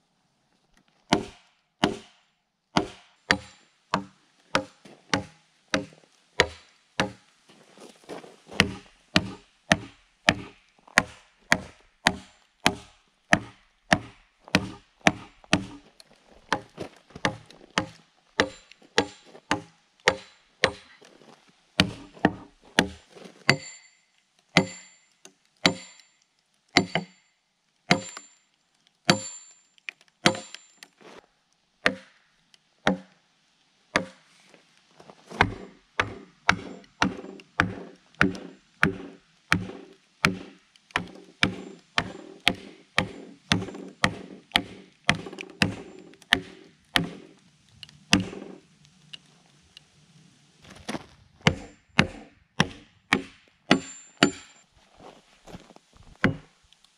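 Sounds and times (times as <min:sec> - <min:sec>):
hammer blows on wedges: 0:01.1 - 0:02.2, 0:02.8 - 0:07.2, 0:08.6 - 0:15.8, 0:16.5 - 0:21.0, 0:21.8 - 0:23.9, 0:24.6 - 0:25.0, 0:25.6 - 0:26.0, 0:26.8 - 0:27.2, 0:27.9 - 0:28.3, 0:29.1 - 0:29.5, 0:30.2 - 0:30.8, 0:35.4 - 0:48.6, 0:51.4 - 0:54.6, 0:56.2 - 0:56.5.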